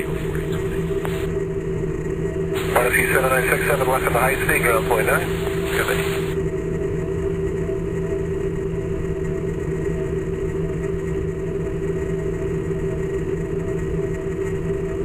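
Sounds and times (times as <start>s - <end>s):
two-tone hum: 0.0s - 8.7s
low rumble: 0.0s - 10.8s.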